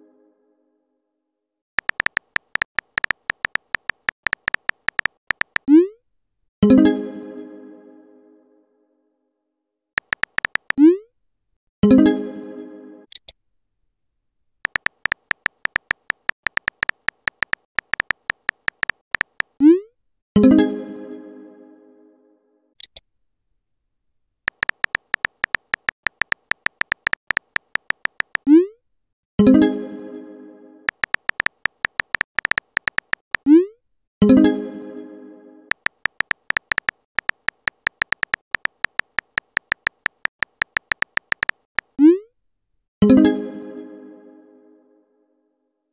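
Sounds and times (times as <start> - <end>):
synthetic keyboard tap clicks: 1.8 - 5.8, 10.0 - 10.9, 14.7 - 19.6, 24.5 - 28.5, 30.9 - 33.5, 35.7 - 42.0.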